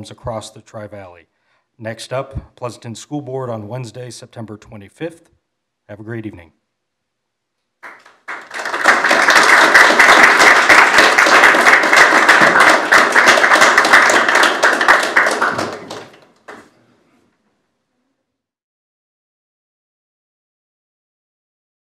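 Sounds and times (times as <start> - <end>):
audience applauding: 7.8 - 16.7.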